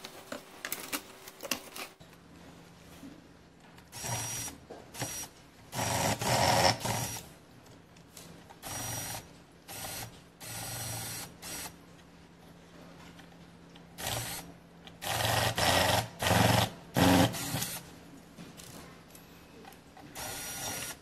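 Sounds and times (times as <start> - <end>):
electric screwdriver whirring: 4.0 - 7.2, 20.2 - 21.0.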